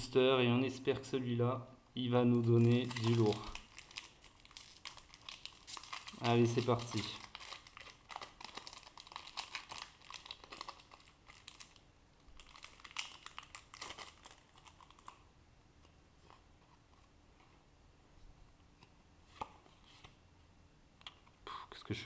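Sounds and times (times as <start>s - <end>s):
foil wrapper crinkling: 2.4s - 15.2s.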